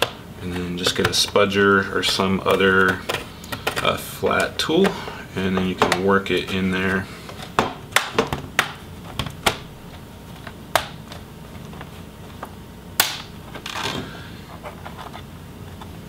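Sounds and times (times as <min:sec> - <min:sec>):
plastic clips snapping: 0:07.4 - 0:11.2, 0:13.0 - 0:13.8.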